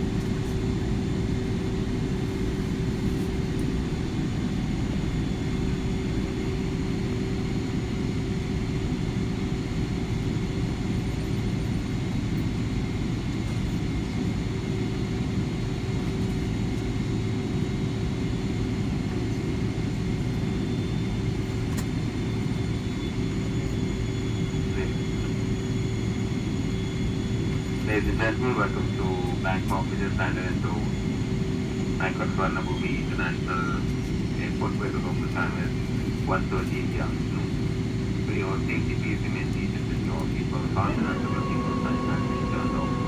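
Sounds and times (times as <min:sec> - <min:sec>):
airliner engines idling rumble: 0:00.0 - 0:43.0
constant hum: 0:00.0 - 0:43.0.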